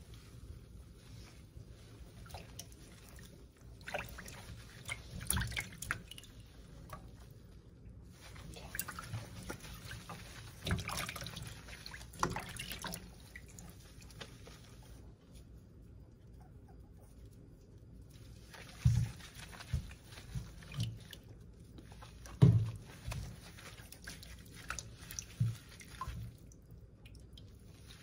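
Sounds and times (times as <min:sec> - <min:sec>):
wet fur being rubbed: 0:00.0 - 0:15.6, 0:18.1 - 0:26.6
water dripping in a steel sink: 0:02.2 - 0:07.3, 0:08.6 - 0:14.2, 0:19.7 - 0:28.0.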